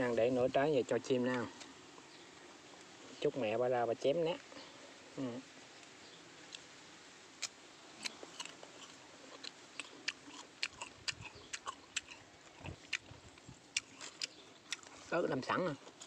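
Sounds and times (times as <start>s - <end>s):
person chewing crisp fruit: 7.4s - 16.0s.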